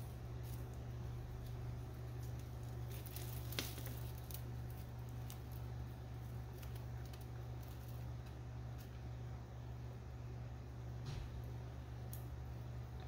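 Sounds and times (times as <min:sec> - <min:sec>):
steady low hum: 0:00.0 - 0:13.0
rustling in dry leaves: 0:01.9 - 0:08.0.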